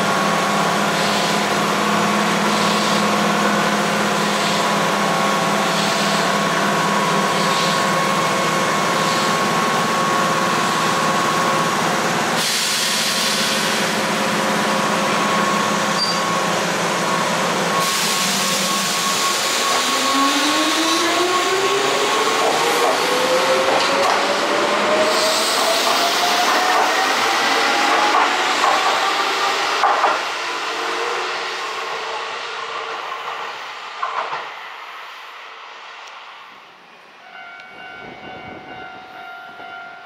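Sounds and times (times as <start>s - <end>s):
electric train motors whining: 0.4s - 32.1s.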